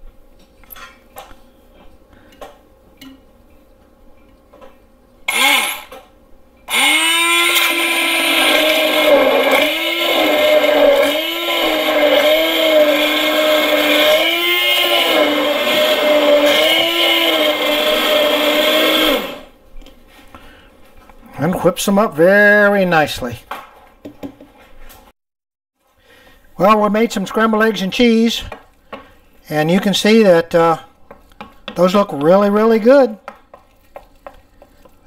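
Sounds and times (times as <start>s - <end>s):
immersion blender whipping eggs: 6.7s - 19.5s.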